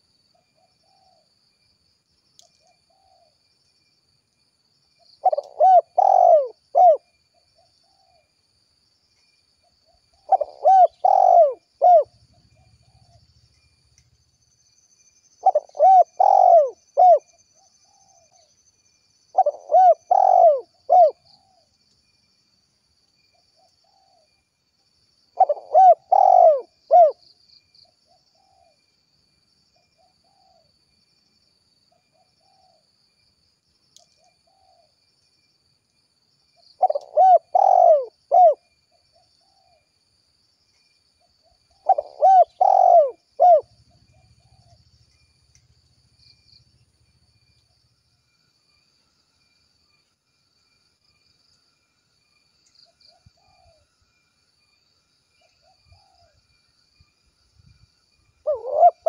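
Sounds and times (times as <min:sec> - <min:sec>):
dove cooing: 0:05.2 - 0:07.1, 0:09.9 - 0:13.2, 0:15.4 - 0:18.3, 0:19.3 - 0:21.7, 0:25.4 - 0:27.2, 0:36.8 - 0:39.8, 0:41.7 - 0:44.8, 0:58.4 - 0:59.0.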